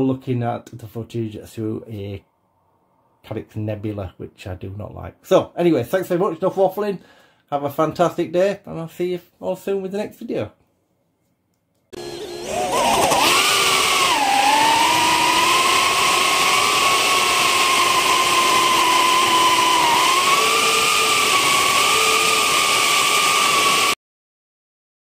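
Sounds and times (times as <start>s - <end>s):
quadcopter motors whining: 12.0s - 24.0s.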